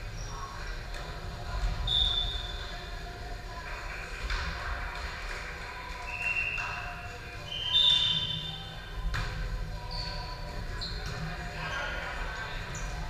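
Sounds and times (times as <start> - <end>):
murmur of voices: 0.0 - 13.0
shoes squeaking on gym floor: 9.8 - 12.0.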